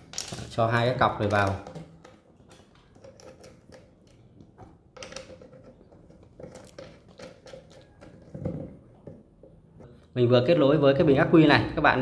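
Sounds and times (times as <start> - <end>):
battery cables and clamps rattling: 0.0 - 4.2.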